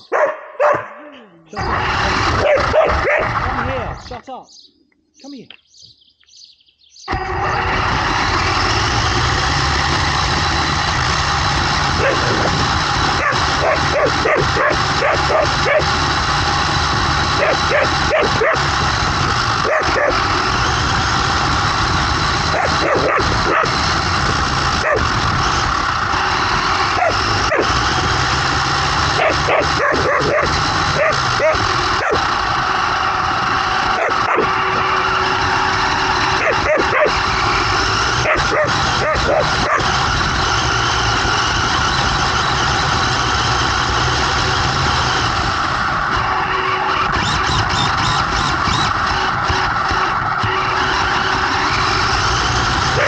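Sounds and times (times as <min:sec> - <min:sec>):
dog barking: 0:00.0 - 0:01.1, 0:02.3 - 0:03.4, 0:13.2 - 0:15.9, 0:17.4 - 0:18.7, 0:29.2 - 0:32.2, 0:34.0 - 0:34.5, 0:36.4 - 0:37.2, 0:38.2 - 0:39.8
electric toy car motor: 0:01.5 - 0:04.1, 0:07.0 - 0:53.0.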